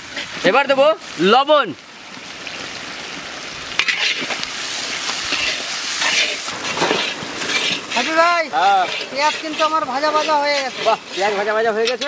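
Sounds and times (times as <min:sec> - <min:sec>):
onions sizzling in oil: 0:00.0 - 0:12.0
spatula scraping pan: 0:03.8 - 0:12.0.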